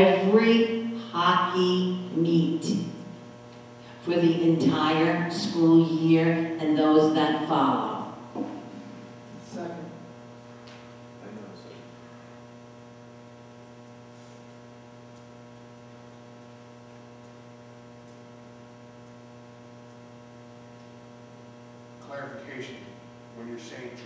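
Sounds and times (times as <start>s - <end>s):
electrical mains hum: 0.0s - 24.0s.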